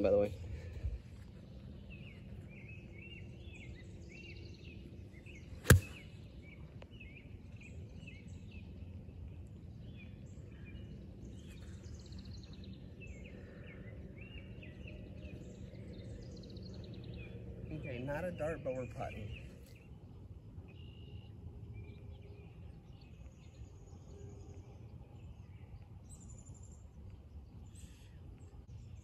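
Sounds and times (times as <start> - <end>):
faint bird chirping: 0.0 - 29.0
golf club striking ball: 5.6 - 6.1.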